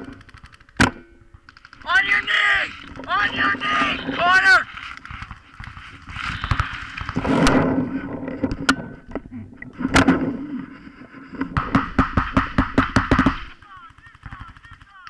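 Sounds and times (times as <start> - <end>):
paintball marker firing: 11.5 - 15.0.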